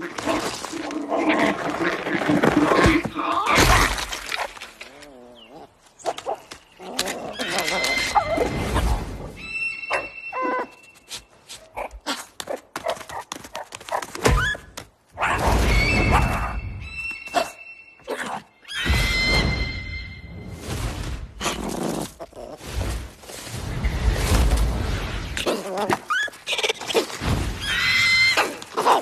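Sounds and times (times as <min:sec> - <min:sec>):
high squeaky whistling tones: 0:09.3 - 0:11.4, 0:15.6 - 0:20.7.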